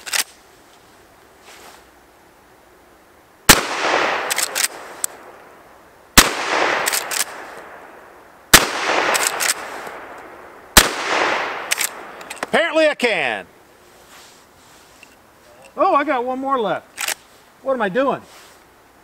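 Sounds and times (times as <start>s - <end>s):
gunshots with long echo: 3.5s - 5.4s, 6.2s - 12.3s.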